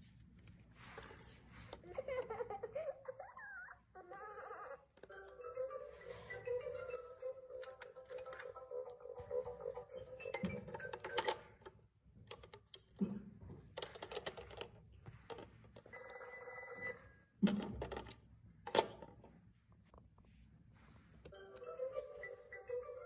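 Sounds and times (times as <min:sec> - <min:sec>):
toy telephone ringing tune: 0:04.4 - 0:11.6, 0:15.8 - 0:17.3, 0:21.3 - 0:23.0.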